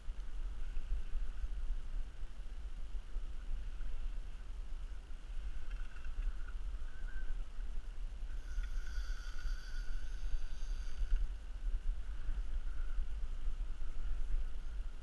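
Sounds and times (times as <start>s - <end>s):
wind on microphone: 0.0s - 15.0s
fishing reel whirring: 8.4s - 11.3s.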